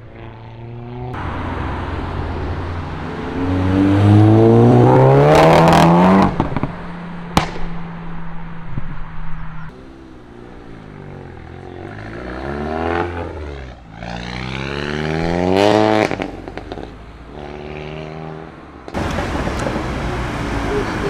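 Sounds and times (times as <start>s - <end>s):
car engine accelerating: 0.2s - 21.0s
exhaust pops and crackles: 5.6s - 7.9s, 16.0s - 17.0s.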